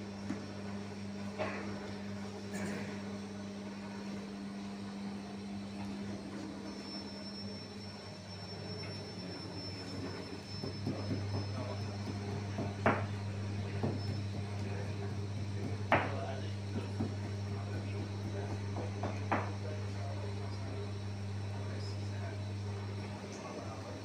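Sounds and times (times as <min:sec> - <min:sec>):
low hum of machinery: 0:00.0 - 0:24.0
sharp knocks and taps: 0:10.5 - 0:13.1.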